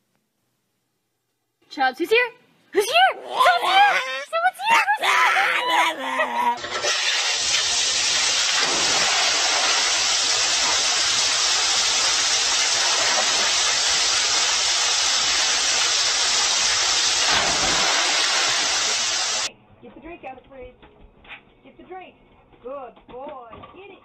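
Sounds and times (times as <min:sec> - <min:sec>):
water rushing into pool: 0:06.6 - 0:19.5.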